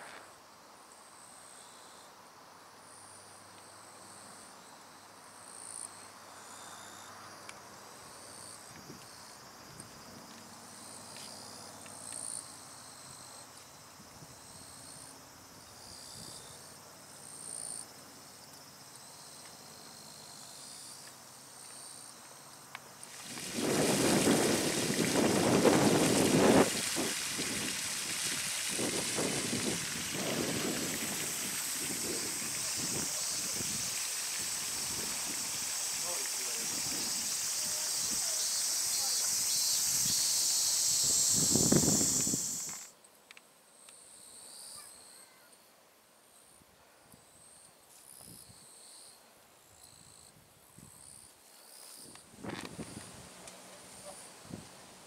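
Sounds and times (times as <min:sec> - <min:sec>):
insects calling in pulses: 0:02.8 - 0:45.8, 0:47.3 - 0:54.6.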